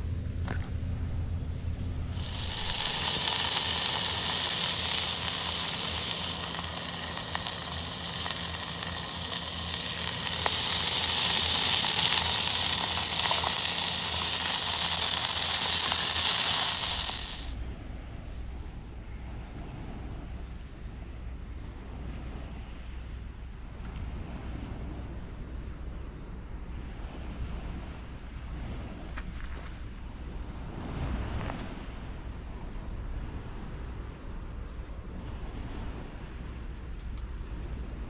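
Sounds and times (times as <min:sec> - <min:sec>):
meat sizzling in a pot: 0:02.1 - 0:17.6.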